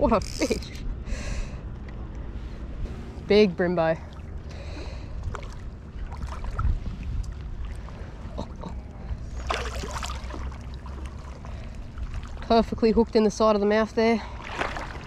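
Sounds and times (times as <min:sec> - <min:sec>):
low steady rumble: 0:00.0 - 0:15.0
fish splashing in water: 0:04.0 - 0:06.8, 0:09.3 - 0:12.5, 0:14.3 - 0:15.0.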